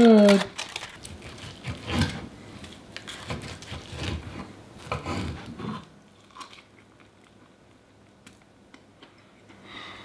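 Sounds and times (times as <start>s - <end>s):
knife sawing through ribs: 1.2s - 2.2s.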